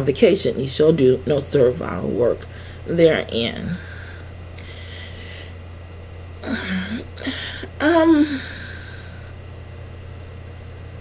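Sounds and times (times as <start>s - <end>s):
woman speaking: 0.0s - 4.2s, 6.4s - 8.9s
low electrical hum: 0.0s - 11.0s
woman breathing in: 2.5s - 2.9s, 3.8s - 5.6s, 6.5s - 9.4s.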